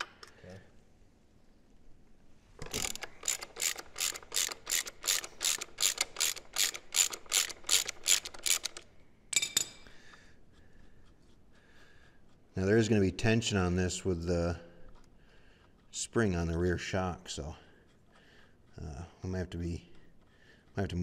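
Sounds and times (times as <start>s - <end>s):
socket ratchet clicking: 2.6s - 9.8s.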